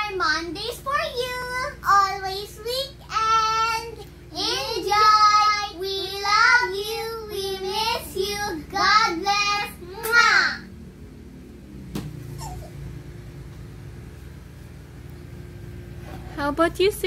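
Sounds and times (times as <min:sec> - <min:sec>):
girls singing together: 0:03.2 - 0:10.3.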